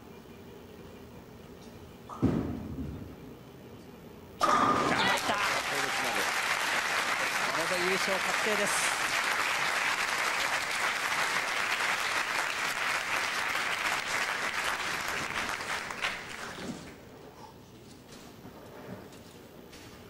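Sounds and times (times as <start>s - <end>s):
audience applauding: 4.4s - 16.8s.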